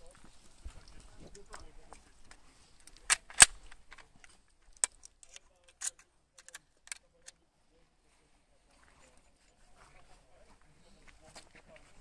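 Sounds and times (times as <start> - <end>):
rifle action clicking: 2.9 - 4.1, 4.8 - 7.4.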